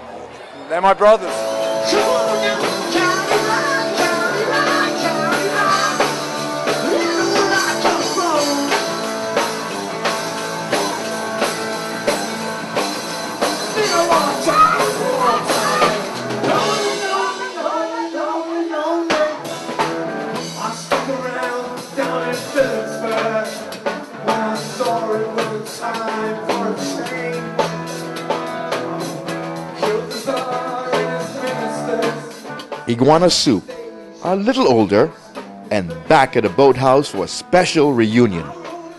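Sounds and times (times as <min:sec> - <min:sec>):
live rock band playing: 0:01.1 - 0:38.9
man singing lead vocals: 0:01.7 - 0:09.1, 0:13.7 - 0:19.7, 0:20.3 - 0:27.8, 0:28.7 - 0:38.9.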